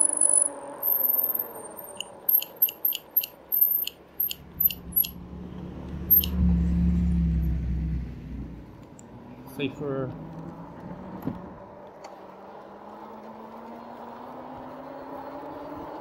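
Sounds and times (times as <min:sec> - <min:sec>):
electric bike clicking: 0:00.0 - 0:05.2, 0:06.1 - 0:06.4.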